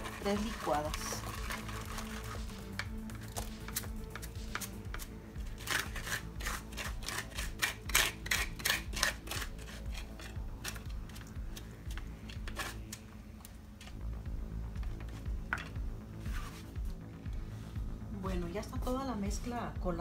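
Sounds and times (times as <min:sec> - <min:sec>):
spoon scraping a mesh strainer: 0:00.0 - 0:05.0.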